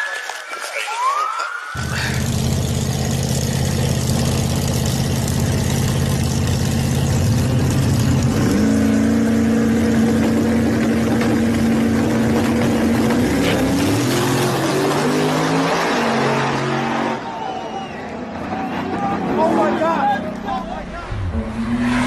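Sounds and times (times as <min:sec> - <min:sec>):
drag car engine revving: 0:01.8 - 0:17.4.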